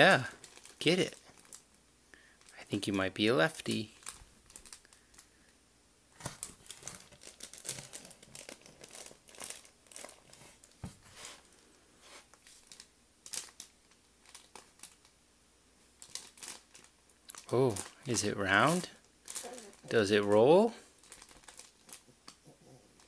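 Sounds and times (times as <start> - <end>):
fabric rustling and crinkling: 6.1 - 15.0, 16.0 - 22.4.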